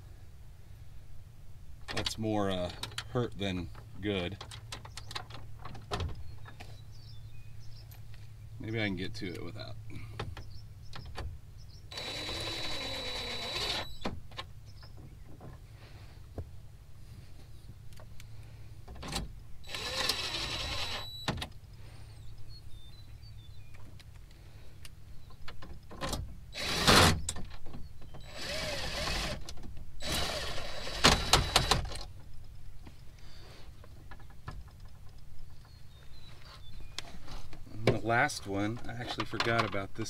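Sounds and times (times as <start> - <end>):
impact driver motor whine: 11.9 - 14.0, 19.6 - 21.3, 28.2 - 29.4.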